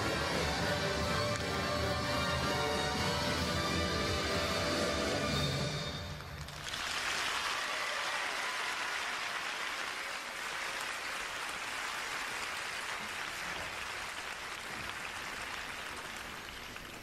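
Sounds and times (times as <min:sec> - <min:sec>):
audience applauding: 0:06.0 - 0:17.0.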